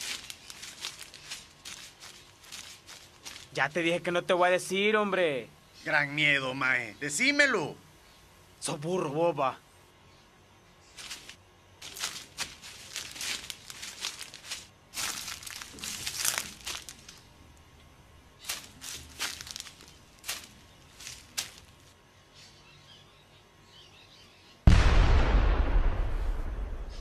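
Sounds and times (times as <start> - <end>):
footsteps crunching through dry leaves: 0.0 - 4.0, 10.9 - 22.0
loud explosion: 24.7 - 27.0.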